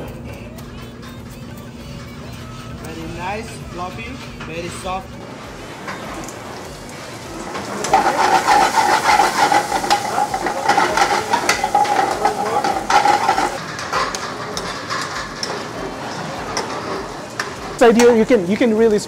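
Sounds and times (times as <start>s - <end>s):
metal utensil scraping pan: 4.1s - 18.4s
food sizzling: 5.1s - 19.0s.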